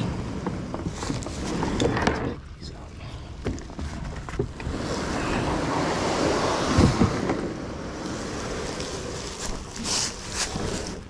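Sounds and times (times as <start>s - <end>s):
kayak scraping over dry leaves: 0.0s - 2.4s, 3.6s - 11.0s
dull thumps: 6.6s - 7.6s.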